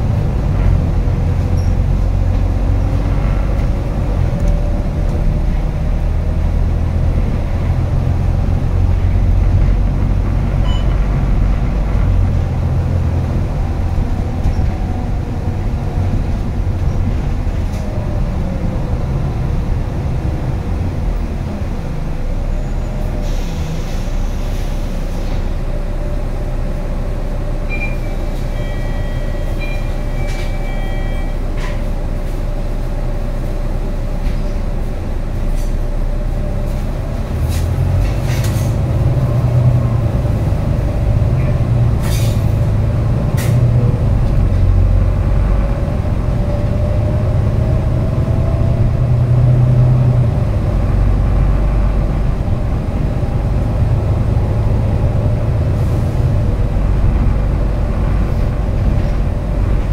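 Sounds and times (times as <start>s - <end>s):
bus engine and transmission drone: 0.0s - 59.9s
road noise: 0.0s - 59.9s
short high beeps: 10.6s - 11.0s, 27.7s - 31.4s.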